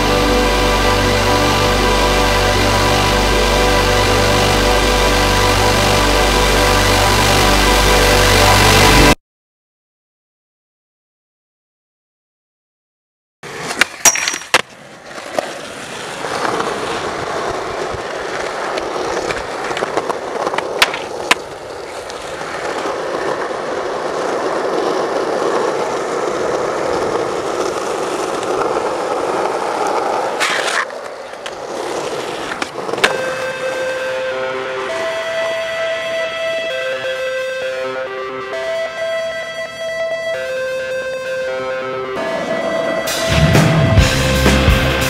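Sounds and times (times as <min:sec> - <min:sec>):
music: 0:00.0 - 0:09.2, 0:33.1 - 0:45.0
skateboard popping and landing: 0:13.4 - 0:33.5
skateboard wheels rolling: 0:13.4 - 0:45.0.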